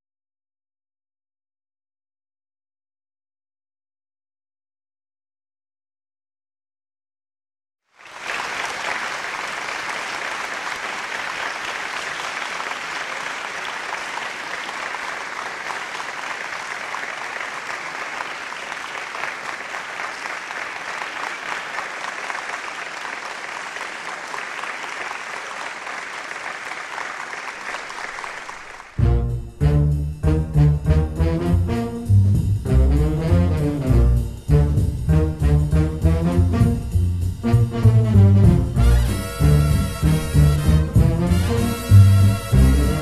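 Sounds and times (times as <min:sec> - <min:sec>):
audience applauding: 0:07.9 - 0:29.2, 0:38.9 - 0:43.0
loud jazz with brass: 0:28.9 - 0:43.0.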